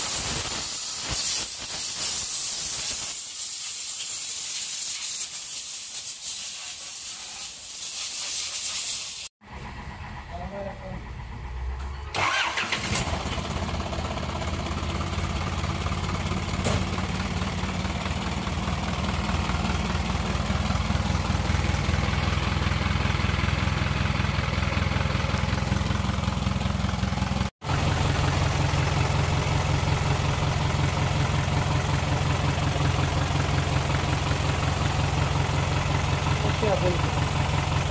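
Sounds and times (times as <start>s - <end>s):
diesel engine idling: 9.4s - 37.9s.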